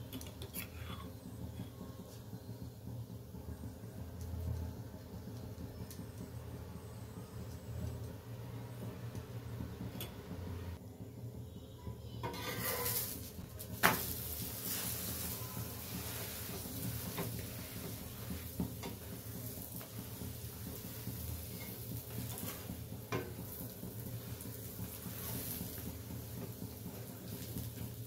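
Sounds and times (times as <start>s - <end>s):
flatbread sizzling in pan: 12.2s - 28.0s.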